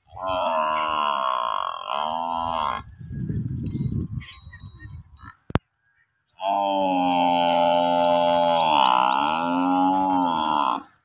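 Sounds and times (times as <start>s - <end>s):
water buffalo bellowing: 0.0s - 3.0s, 6.4s - 11.0s
rough grunting: 0.1s - 3.0s, 6.4s - 10.9s.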